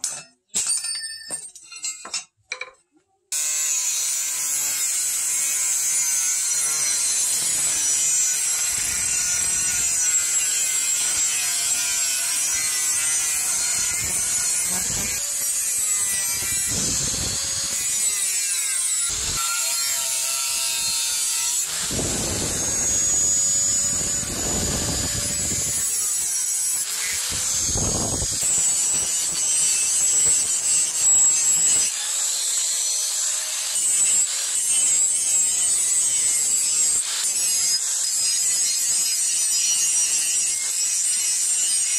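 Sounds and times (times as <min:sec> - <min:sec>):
angle grinder cutting steel: 0:03.3 - 0:41.9
flap disc grinding steel: 0:05.0 - 0:32.6
grinder motor whine: 0:05.5 - 0:32.7.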